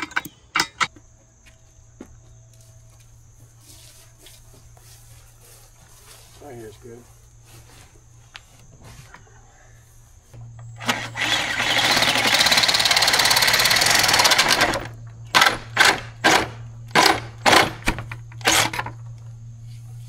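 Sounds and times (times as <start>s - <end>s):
power drill boring into wall: 10.8s - 17.8s.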